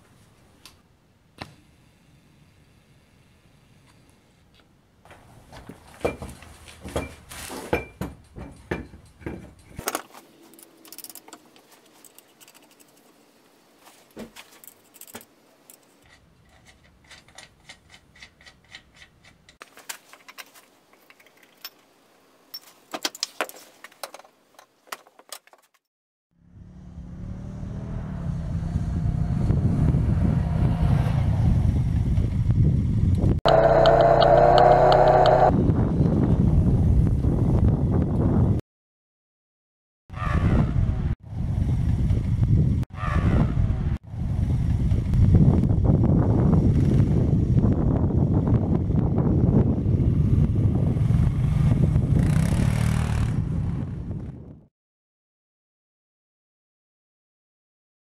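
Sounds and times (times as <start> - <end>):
bottle jack being worked: 7.8 - 13.1, 14.6 - 21.9
engine whine: 26.4 - 36.0
atv engine running: 32.0 - 35.6.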